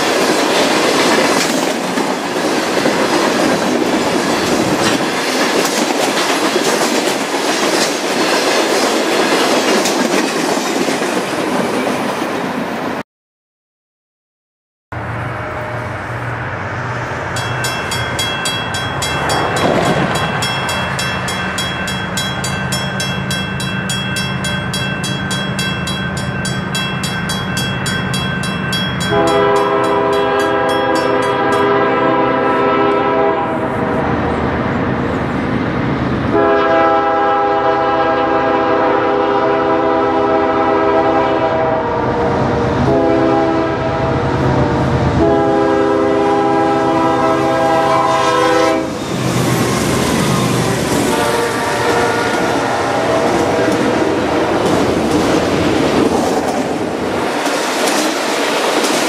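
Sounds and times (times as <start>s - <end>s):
freight train rumble: 0.0s - 13.0s, 14.9s - 59.0s
crossing bell ringing rapidly: 17.3s - 31.8s
locomotive air horn blasts: 29.0s - 33.9s, 36.3s - 49.0s, 51.0s - 54.4s.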